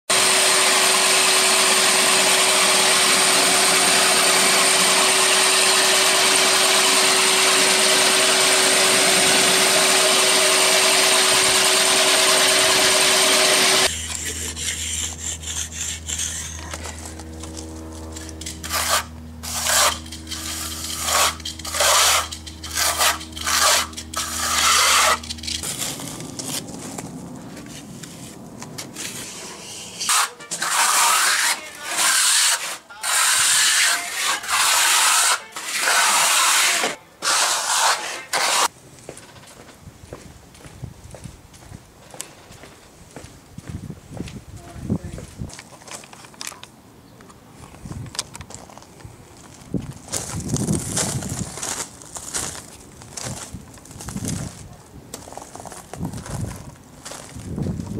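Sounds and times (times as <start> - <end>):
trowel scraping concrete: 0.1 - 27.0, 27.6 - 38.7
floor grinder whining: 0.1 - 27.4, 30.1 - 38.7
low hum: 2.0 - 30.1.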